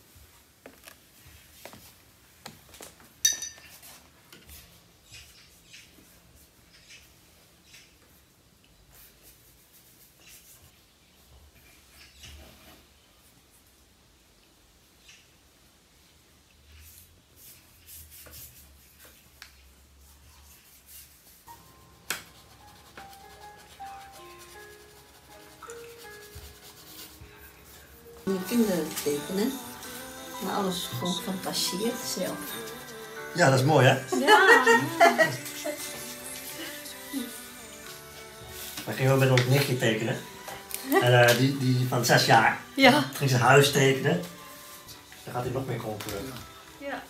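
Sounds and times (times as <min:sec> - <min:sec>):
crockery clinking: 0:03.2 - 0:03.8
pen scratching on paper: 0:22.2 - 0:28.0.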